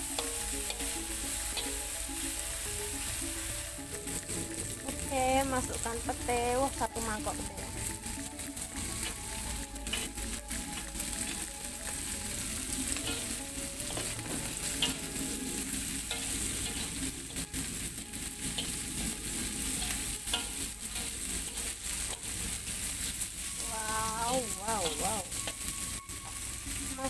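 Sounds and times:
food sizzling in a wok: 0.0 - 27.0
spatula scraping a pan: 7.5 - 23.6, 24.3 - 26.9.

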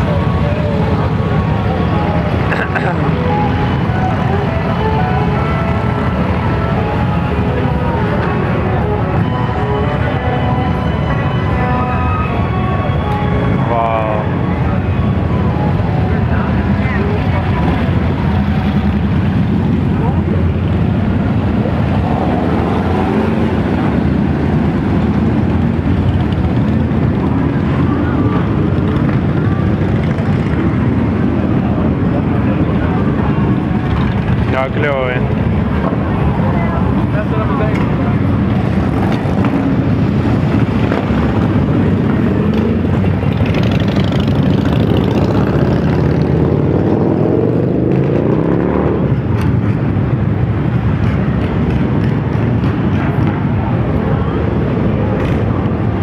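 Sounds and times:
many motorcycle engines running: 0.0 - 56.0
motorcycle engine revving: 38.5 - 53.5.

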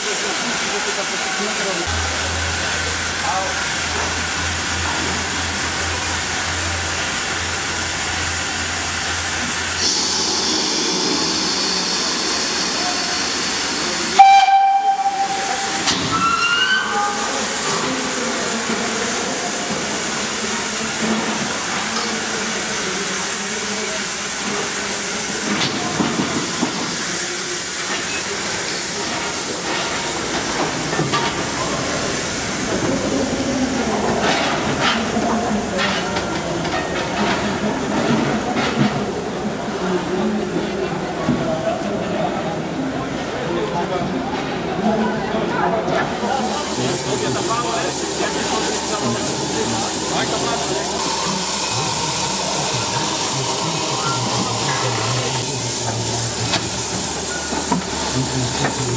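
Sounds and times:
loud hiss of escaping steam: 0.0 - 37.9, 46.2 - 58.9
steam whistle blast: 14.2 - 17.4.

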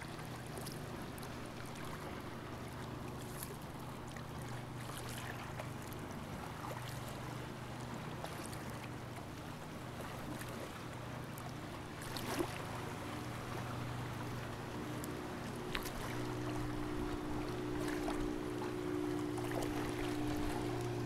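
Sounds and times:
water lapping and splashing: 0.0 - 21.0
steady low hum: 9.8 - 21.0.

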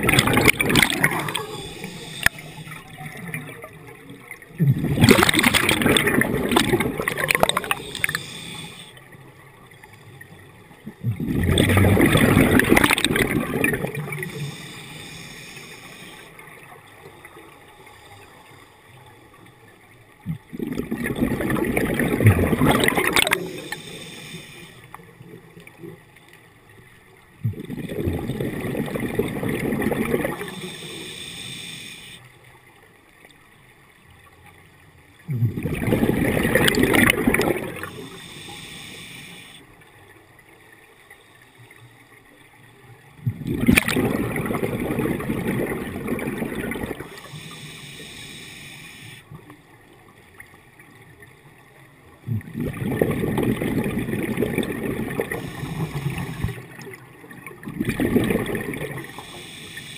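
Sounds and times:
diver breathing underwater: 0.0 - 2.9, 4.9 - 9.0, 11.2 - 16.4, 21.4 - 24.9, 29.3 - 32.2, 35.3 - 39.7, 44.1 - 49.3, 52.3 - 56.8, 57.9 - 59.9
regulator bubbles gurgling: 0.0 - 31.5, 35.1 - 41.2, 42.6 - 48.4, 49.0 - 59.9.

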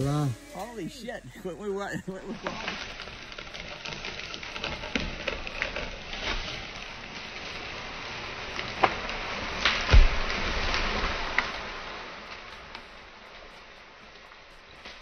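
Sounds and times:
branches cracking: 0.0 - 15.0
twigs and leaves crackling: 0.0 - 15.0
tree trunk thudding on ground: 8.8 - 11.8.

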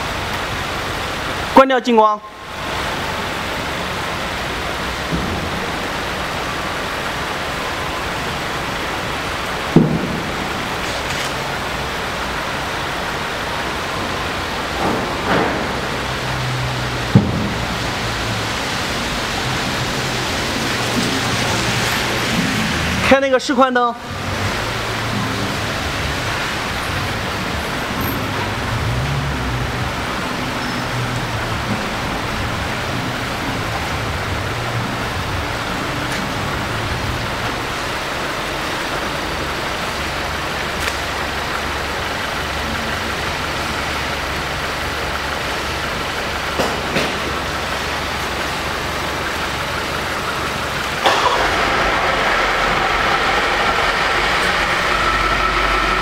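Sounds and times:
car engine idling: 24.1 - 56.0.

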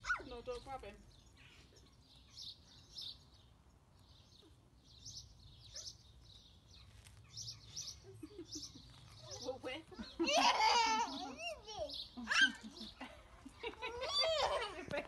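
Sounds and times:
bird chirps: 0.0 - 10.2.

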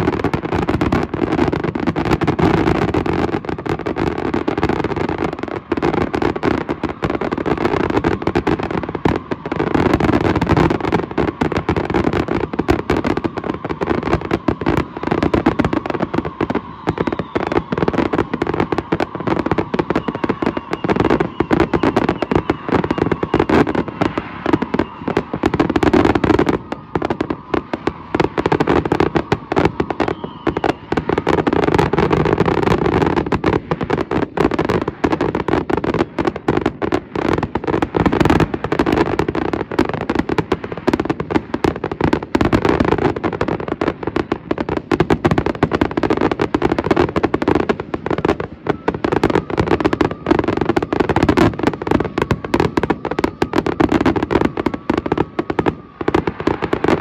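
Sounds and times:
fireworks bursting and crackling: 0.0 - 57.0.

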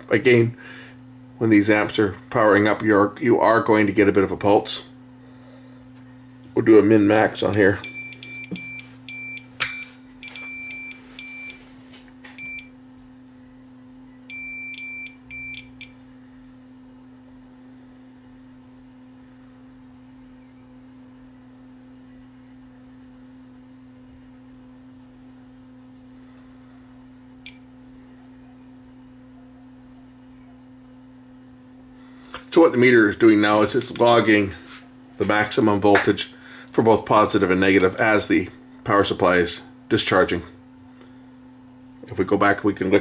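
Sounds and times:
steady low hum: 0.0 - 43.0
multimeter beeping: 7.8 - 11.6, 12.4 - 12.7, 14.3 - 16.0, 27.4 - 27.7.

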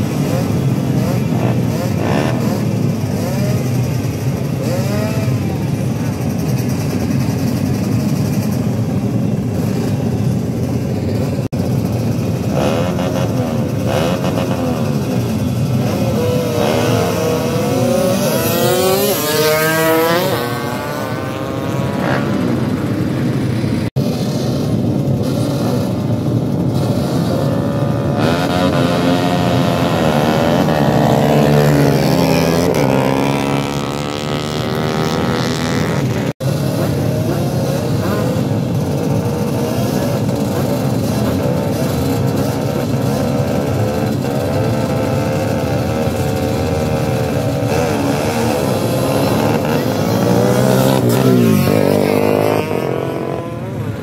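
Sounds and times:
motorcycle engines droning: 0.0 - 54.0
engine revving up: 15.9 - 22.6, 26.7 - 38.4, 39.1 - 53.8.

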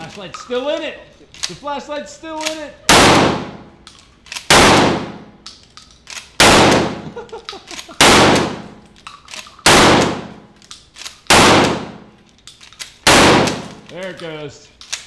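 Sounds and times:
shotgun pump racking: 2.4 - 2.6, 8.8 - 9.6, 12.2 - 15.0
shotgun blasts indoors: 2.9 - 3.8, 4.4 - 5.5, 6.4 - 7.2, 7.9 - 8.8, 9.6 - 10.6, 11.2 - 12.2, 13.0 - 13.8.

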